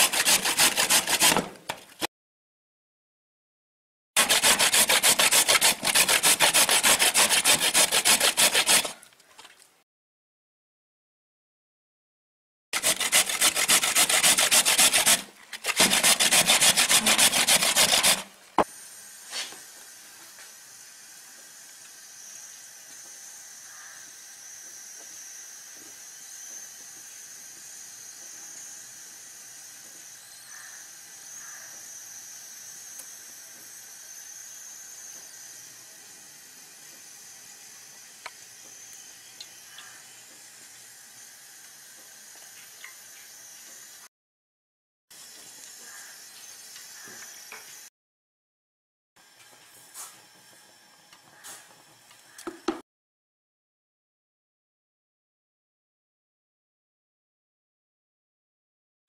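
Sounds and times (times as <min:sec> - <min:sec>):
carrots grated on metal grater: 0:00.0 - 0:01.5, 0:04.2 - 0:09.0, 0:12.8 - 0:18.3.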